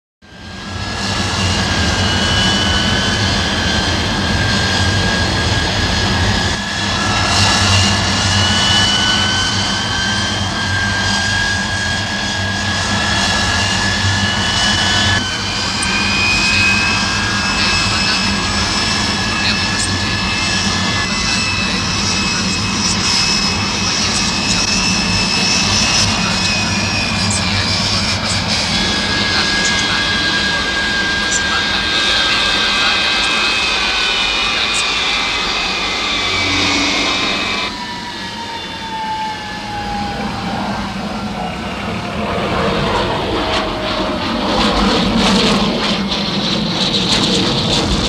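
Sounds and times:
jet engines whining: 0.3s - 48.0s.

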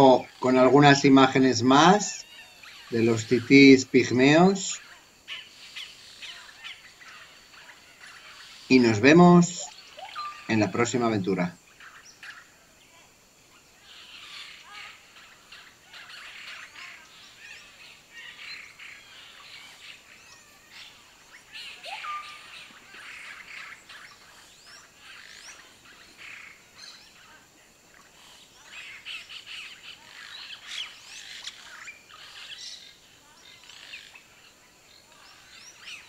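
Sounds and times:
high-pitched bird chirps: 1.6s - 12.5s, 13.9s - 27.4s.

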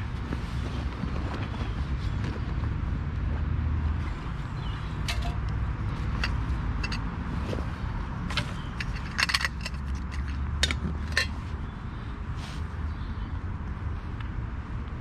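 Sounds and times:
camping gear clattering: 3.9s - 11.6s
metal bottle set down: 5.0s - 5.5s.

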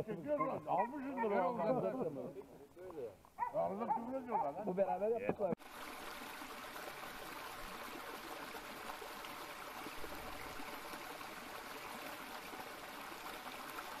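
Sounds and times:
stream running over rocks: 4.8s - 14.0s.

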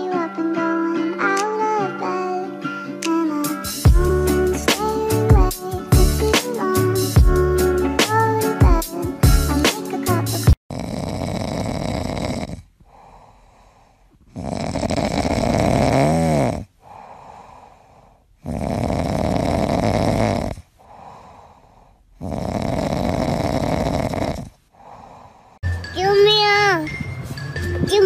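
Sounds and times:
cat snoring: 10.7s - 25.6s.

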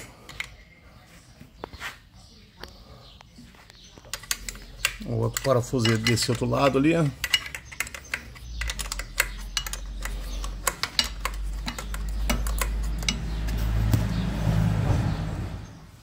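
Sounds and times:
wrench clicking on metal nut: 4.1s - 13.3s.

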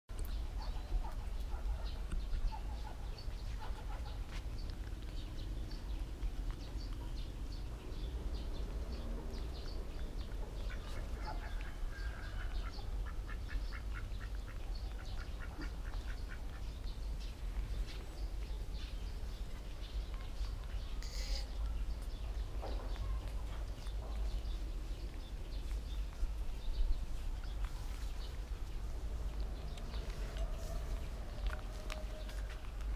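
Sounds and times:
steady low rumble: 1.7s - 21.0s, 21.6s - 32.9s
high-pitched animal chirps: 21.0s - 21.6s.

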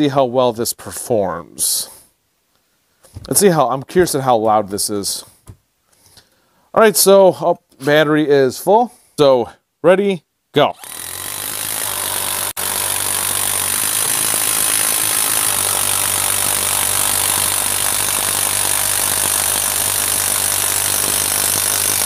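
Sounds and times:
impact driver driving screw into wood: 10.8s - 22.0s.

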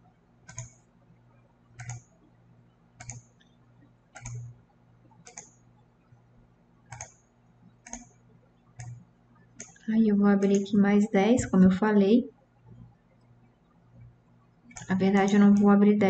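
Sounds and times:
computer mouse clicking: 0.4s - 0.9s, 1.8s - 2.1s, 3.0s - 4.6s, 5.2s - 5.7s, 6.9s - 8.2s, 8.8s - 10.8s, 14.7s - 15.8s.

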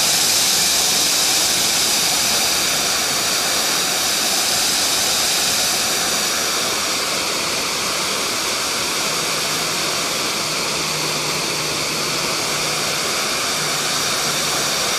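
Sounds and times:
waterfall pouring into pond: 0.0s - 14.9s.

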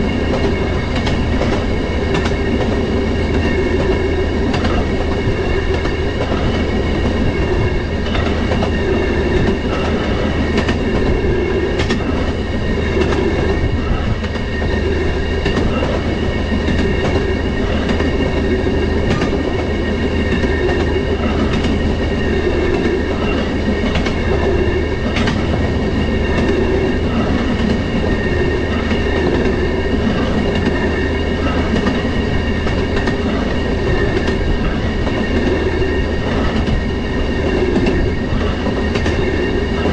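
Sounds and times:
rail motorcar engine drone: 0.0s - 39.9s.

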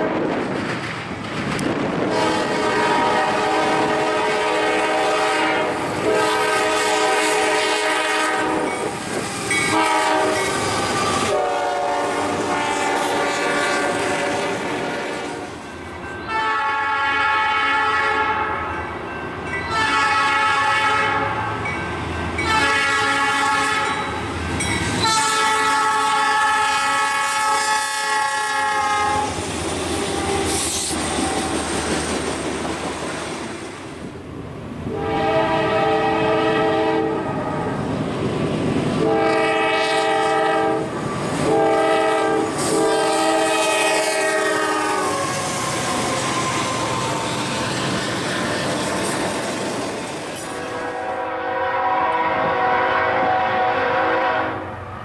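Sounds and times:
train wheels clicking on rails: 0.0s - 5.0s, 8.0s - 16.3s, 23.8s - 26.0s, 28.8s - 34.2s, 40.1s - 50.8s
locomotive air horn: 2.0s - 18.8s, 19.7s - 21.7s, 22.4s - 24.2s, 25.0s - 31.6s, 34.9s - 37.8s, 39.0s - 49.7s, 50.3s - 54.8s.

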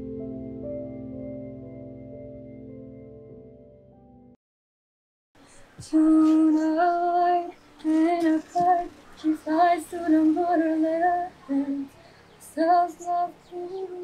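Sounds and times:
woman singing solo: 5.8s - 14.0s.

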